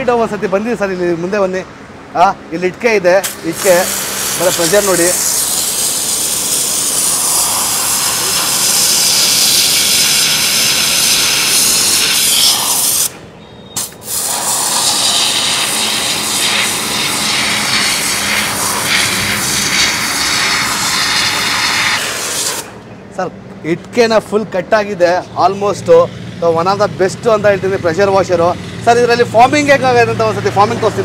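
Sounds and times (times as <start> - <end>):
pressure washer jet hissing: 3.2 - 22.8.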